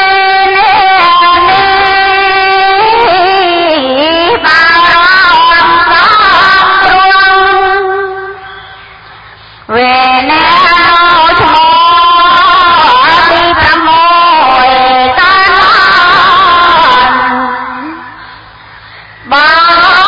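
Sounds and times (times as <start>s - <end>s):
person singing melodic chant: 0.0s - 20.0s.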